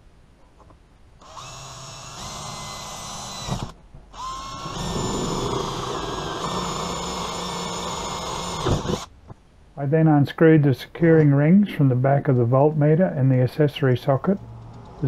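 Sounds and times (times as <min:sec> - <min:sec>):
electric drill with hole saw cutting plastic: 0:01.2 - 0:09.1.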